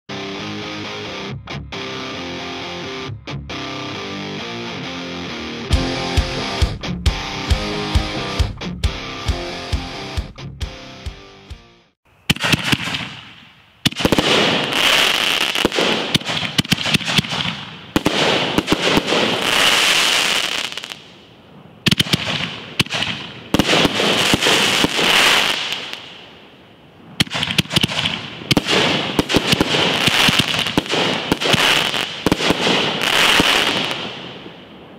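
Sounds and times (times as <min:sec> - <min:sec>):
firework crackling: 0:12.3 - 0:34.9.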